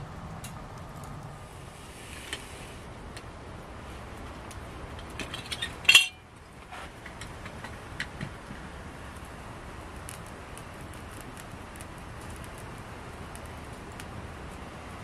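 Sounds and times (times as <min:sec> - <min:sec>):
wood fire crackling: 0:00.0 - 0:15.0
metal cookware clinking: 0:05.2 - 0:06.2.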